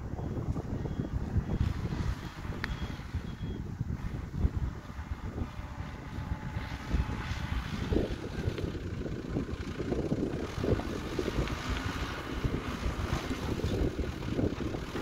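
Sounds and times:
diesel engine running: 0.0 - 15.0
wind buffeting microphone: 0.0 - 15.0.

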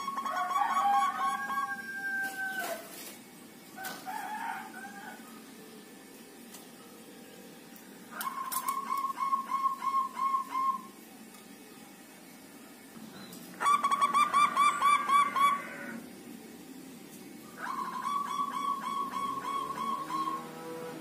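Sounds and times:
doves cooing: 8.1 - 11.0, 13.5 - 16.1, 17.5 - 21.0.

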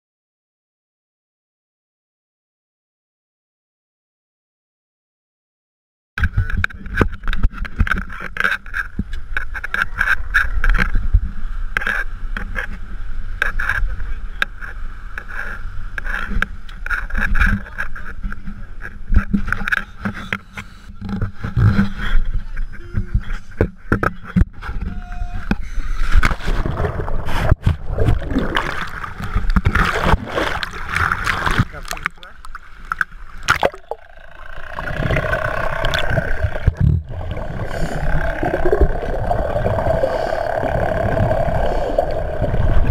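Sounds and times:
muffled outboard motors: 6.2 - 42.9
wind: 6.2 - 42.9
underwater splashing and bubbling: 26.2 - 42.9.

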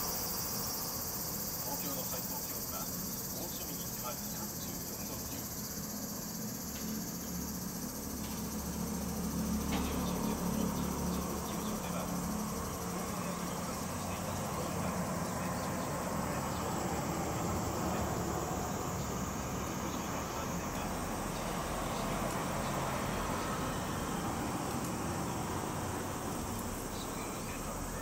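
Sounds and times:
cicadas singing: 0.0 - 28.0.

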